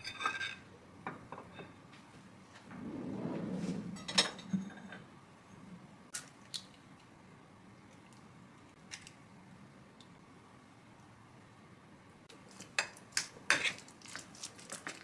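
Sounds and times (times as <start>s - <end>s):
kitchen drawer sliding: 2.7s - 5.0s.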